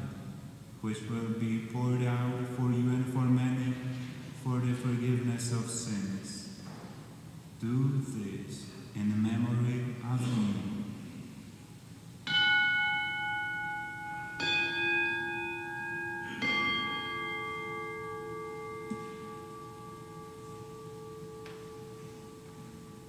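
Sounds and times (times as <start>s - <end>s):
altar bell ringing: 12.2s - 23.0s.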